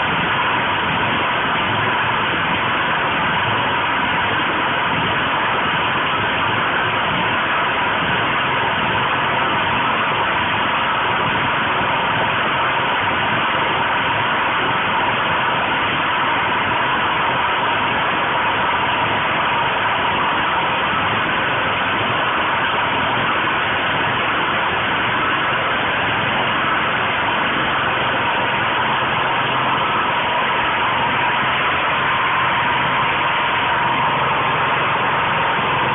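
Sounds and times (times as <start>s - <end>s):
generator engine running: 0.0s - 35.9s
steady high tone: 7.0s - 35.9s.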